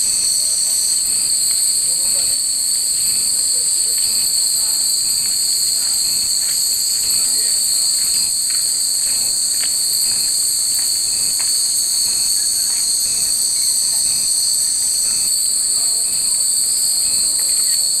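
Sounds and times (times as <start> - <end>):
cicadas droning: 0.0 - 18.0.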